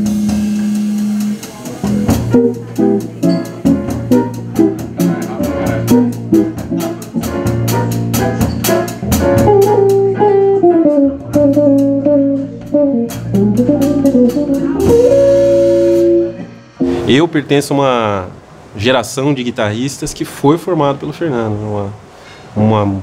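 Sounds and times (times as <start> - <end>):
electric guitar: 0.0 - 17.1
double bass: 0.0 - 17.2
drum and cymbal hits: 0.0 - 17.4.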